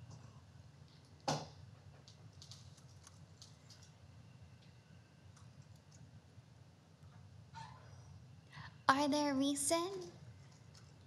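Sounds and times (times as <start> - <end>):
low room hum: 0.0 - 11.0
computer keyboard typing: 2.1 - 3.9, 10.4 - 11.0.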